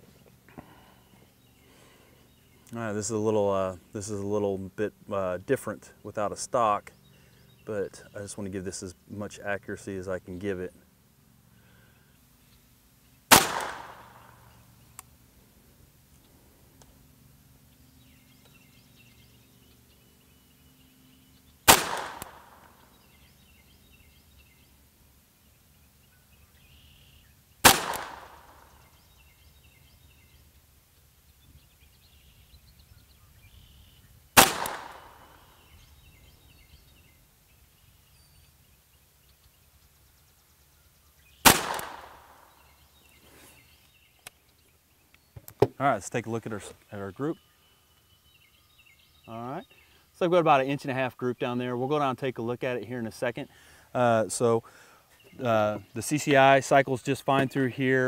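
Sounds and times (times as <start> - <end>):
suppressed pistol shots: 13.3 - 14.6, 21.6 - 22.9, 27.6 - 28.9, 34.4 - 35.6, 41.4 - 42.6.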